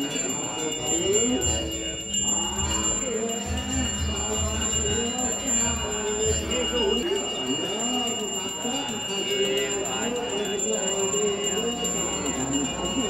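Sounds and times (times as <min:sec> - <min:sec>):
brass hand bell ringing: 0:00.0 - 0:13.0
voices chanting: 0:00.0 - 0:13.0.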